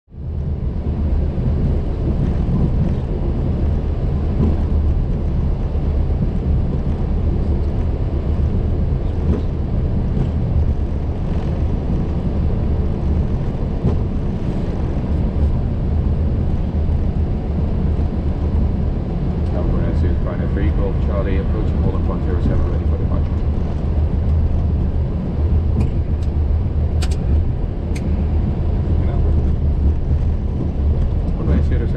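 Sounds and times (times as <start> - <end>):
aircraft engines idling rumble: 0.1 - 31.9.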